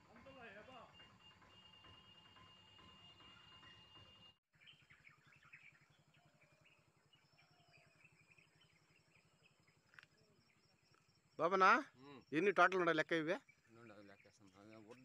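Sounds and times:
small bird chirps: 2.7 - 12.5.

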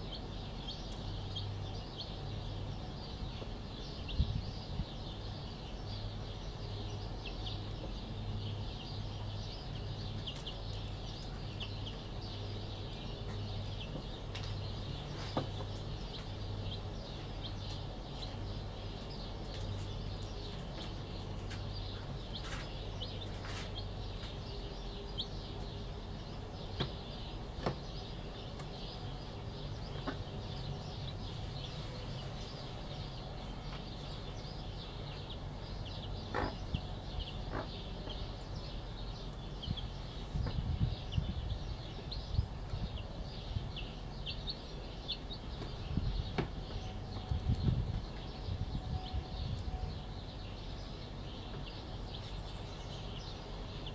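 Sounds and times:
chicks peeping: 0.0 - 53.9
low pulsing hum: 28.2 - 53.9.

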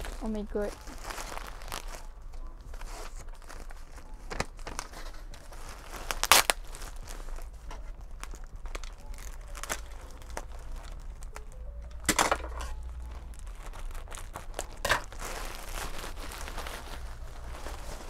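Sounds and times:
plastic bag crinkling and tearing: 0.0 - 18.0.

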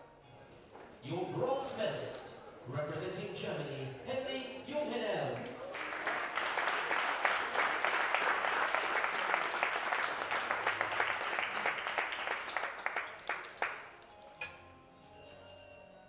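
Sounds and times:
audience applauding: 5.4 - 14.0.

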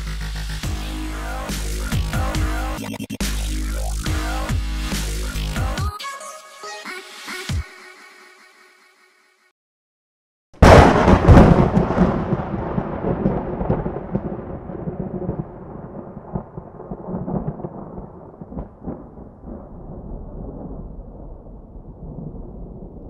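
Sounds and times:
thunder crash and rumble: 10.6 - 23.0.

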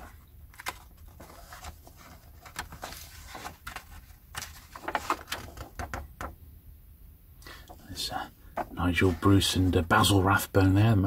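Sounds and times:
magazine pages rustling: 0.0 - 6.1.

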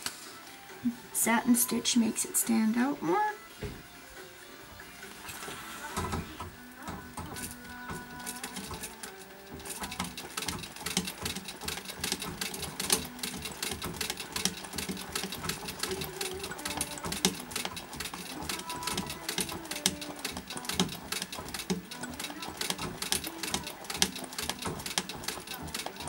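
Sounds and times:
sewing machine needle ticking: 5.9 - 26.0.

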